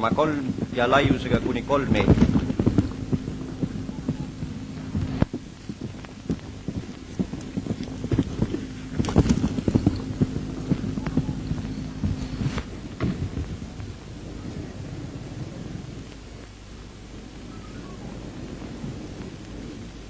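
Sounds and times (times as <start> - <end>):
dull thuds: 0.0 - 13.9
film crackle: 0.0 - 20.0
low hum: 0.0 - 20.0.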